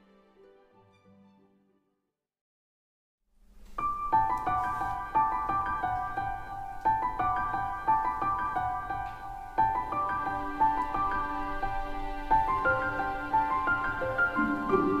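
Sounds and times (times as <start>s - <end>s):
keyboard music melody: 3.8s - 15.0s.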